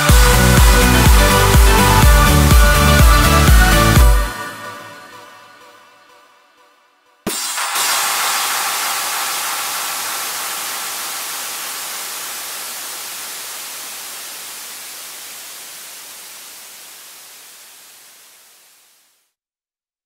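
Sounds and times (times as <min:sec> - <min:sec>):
electronic white noise: 0:07.3 - 0:19.2.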